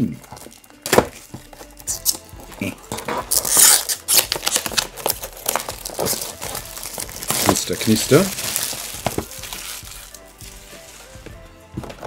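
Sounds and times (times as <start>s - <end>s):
plastic shrink wrap crinkling: 0.0s - 11.4s.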